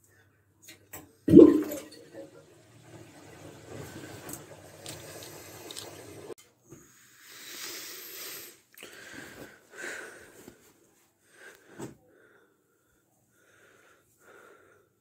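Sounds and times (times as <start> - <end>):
water running: 1.3 - 6.4.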